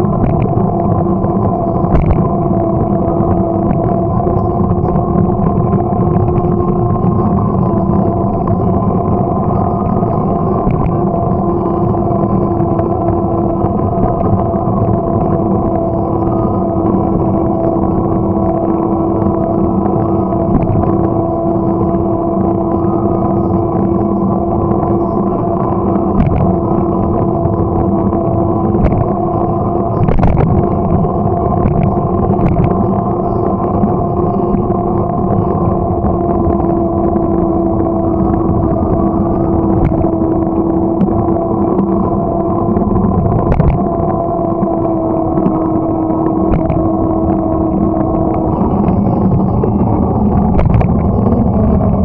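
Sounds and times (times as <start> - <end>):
bicycle riding hum: 0.0 - 52.0
bike engine droning: 0.0 - 52.0.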